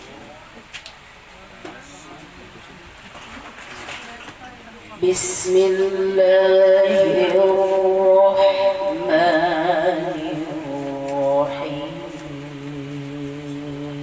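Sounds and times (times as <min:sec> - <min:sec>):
woman chanting recitation: 0:05.0 - 0:14.0.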